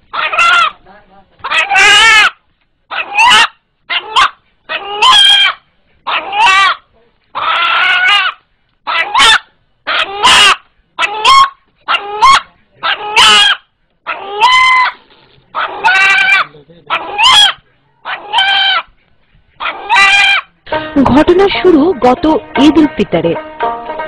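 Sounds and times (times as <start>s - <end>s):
rooster calling: 0.1s - 0.8s, 1.4s - 18.9s, 19.6s - 20.6s.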